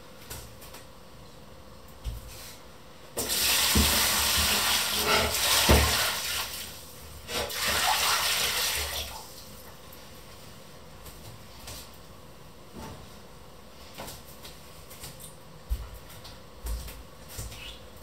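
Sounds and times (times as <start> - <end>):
tap water running: 3.2 - 9.6.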